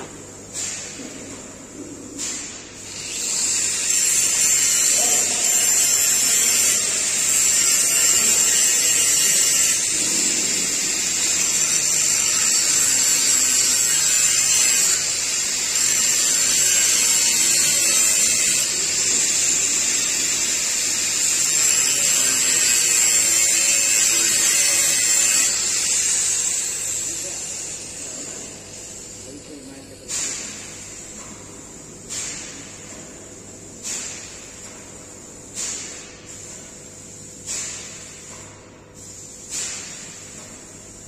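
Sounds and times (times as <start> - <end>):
angle grinder grinding steel: 2.9 - 28.0.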